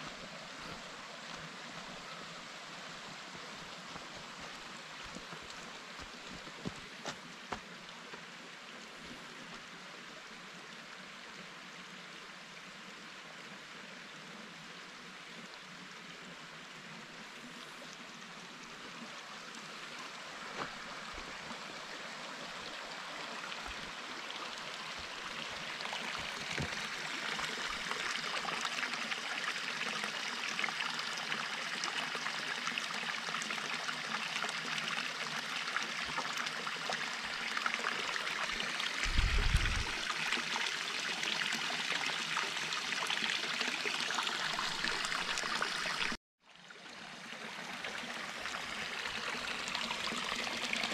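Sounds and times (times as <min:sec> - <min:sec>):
stream trickling: 0:00.0 - 0:50.9
water pouring into stone basin: 0:23.6 - 0:46.2.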